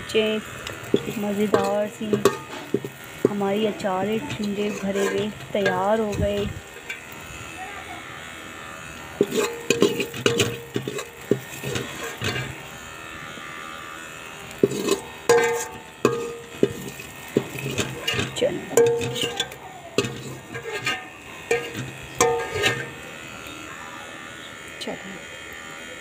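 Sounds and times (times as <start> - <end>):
metal skimmer knocking in pot: 0.9 - 3.4, 9.2 - 12.6, 14.6 - 23.0.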